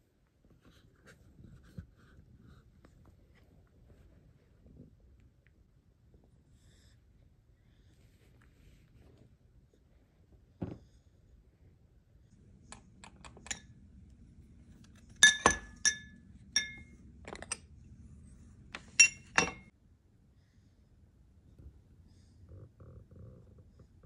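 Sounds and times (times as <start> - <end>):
soft thump: 10.6 - 10.9
lids clinking on porcelain bowls: 15.2 - 17.6, 18.8 - 19.7.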